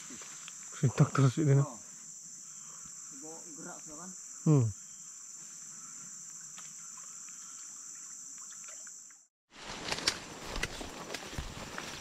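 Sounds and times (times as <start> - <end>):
insects droning: 0.0 - 9.3.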